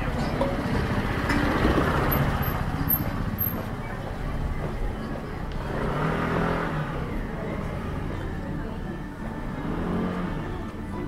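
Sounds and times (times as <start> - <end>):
motor vehicle running: 0.0 - 11.0.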